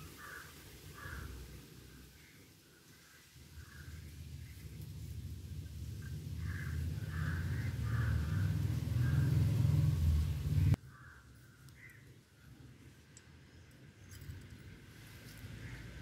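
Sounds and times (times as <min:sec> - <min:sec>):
crows cawing: 0:00.1 - 0:01.4, 0:06.4 - 0:09.4, 0:10.8 - 0:12.1
low rumble: 0:03.6 - 0:10.8.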